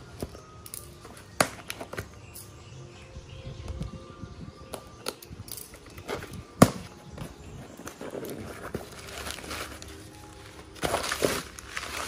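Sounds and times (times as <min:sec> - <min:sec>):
cardboard and plastic crinkling: 0:06.0 - 0:12.0.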